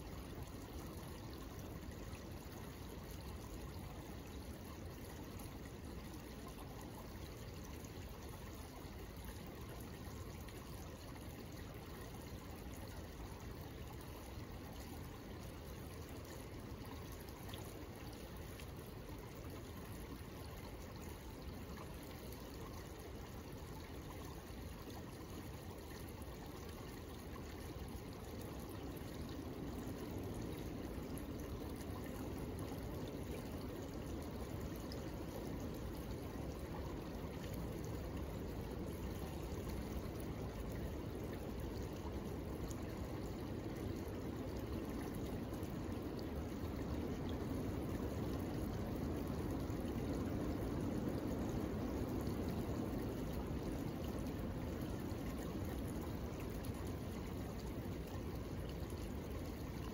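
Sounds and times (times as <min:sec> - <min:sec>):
creek water flowing: 0:00.0 - 0:59.9.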